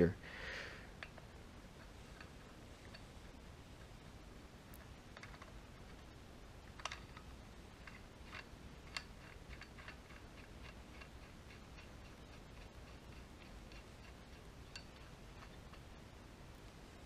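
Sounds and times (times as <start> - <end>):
metal nut clicking on threaded rod: 6.7 - 15.9.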